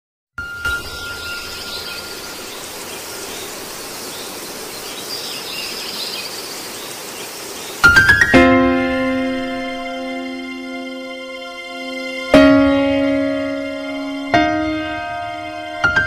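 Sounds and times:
airy hiss with high warbling: 0:00.6 - 0:08.3.

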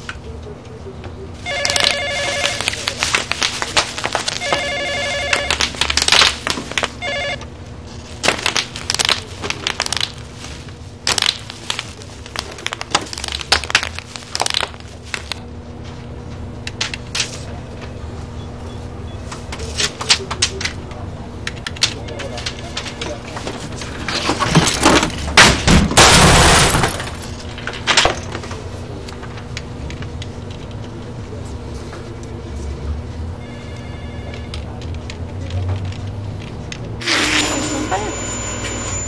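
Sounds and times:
desk telephone ringing: 0:01.4 - 0:02.9, 0:04.3 - 0:05.8, 0:06.8 - 0:07.5, 0:33.4 - 0:34.7, 0:37.0 - 0:39.0
crunching and crashing: 0:01.4 - 0:15.5, 0:22.2 - 0:28.6.

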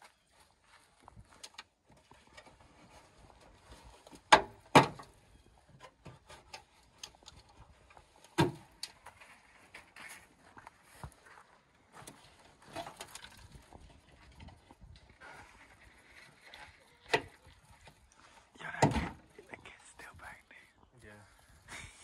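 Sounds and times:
small clicks and scrapes: 0:05.8 - 0:10.7, 0:12.0 - 0:18.4.

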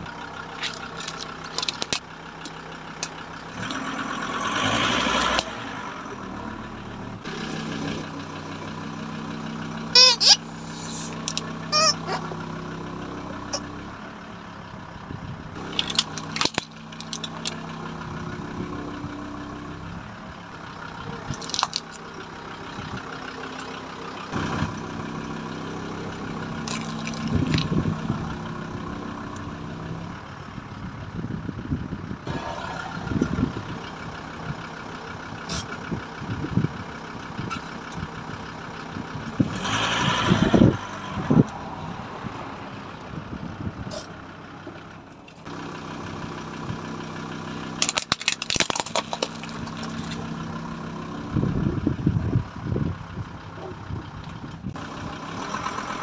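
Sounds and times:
car engine idling: 0:00.0 - 0:56.0
tyre crushing small objects: 0:00.6 - 0:02.0, 0:15.6 - 0:17.6, 0:21.3 - 0:22.0, 0:26.6 - 0:27.8, 0:47.8 - 0:50.3
sharp cracks: 0:47.8 - 0:50.2.

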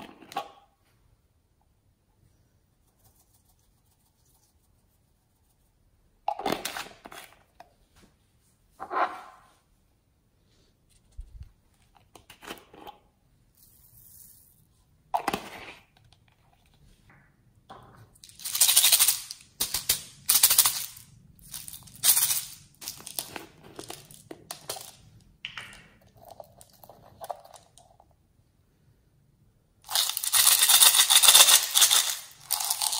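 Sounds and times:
foam beads shifting: 0:29.9 - 0:32.9.

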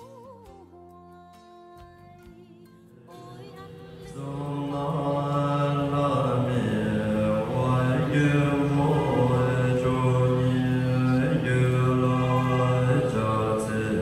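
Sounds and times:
monks chanting in low voices: 0:04.1 - 0:14.0.

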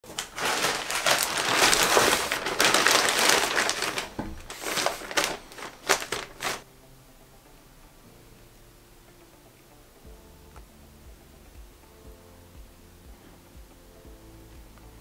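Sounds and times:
plastic mailer crinkling: 0:00.0 - 0:06.6.

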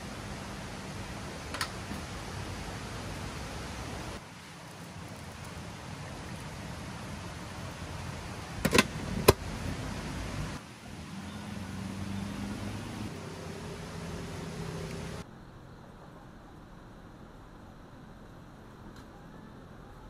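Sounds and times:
pot boiling: 0:00.0 - 0:15.3.

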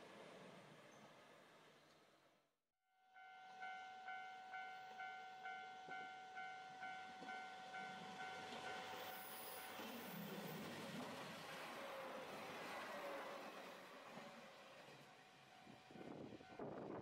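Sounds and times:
approaching train: 0:00.0 - 0:02.3, 0:03.2 - 0:17.0
level crossing warning bell: 0:03.0 - 0:09.8.

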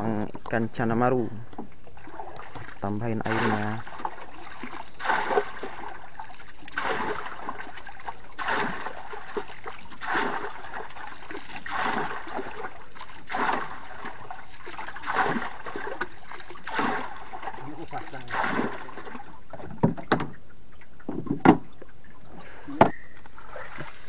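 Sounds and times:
water splashing and pouring: 0:02.0 - 0:20.1, 0:23.4 - 0:24.0.

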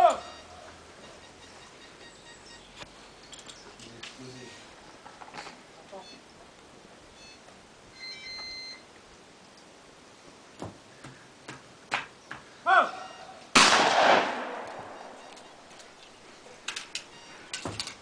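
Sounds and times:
brief beep: 0:00.1 - 0:02.8, 0:06.0 - 0:06.2, 0:07.2 - 0:08.8, 0:14.9 - 0:15.8, 0:17.0 - 0:17.6
sharp crack: 0:13.6 - 0:15.0
shotgun blast: 0:13.6 - 0:15.2.

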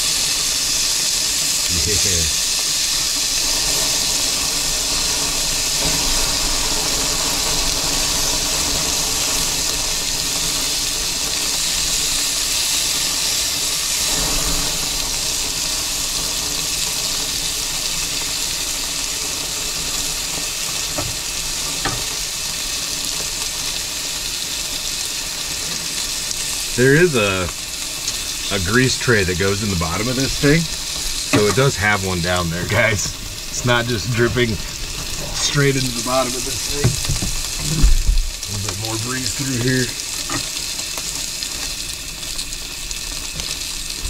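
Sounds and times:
meat sizzling on a grill: 0:00.0 - 0:44.0
metal tongs tapping grate: 0:31.3 - 0:31.6.

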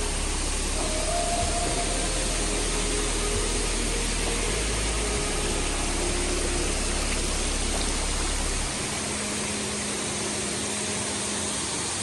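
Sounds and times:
low rumble: 0:00.0 - 0:10.5
waterfall roaring: 0:00.0 - 0:12.0.

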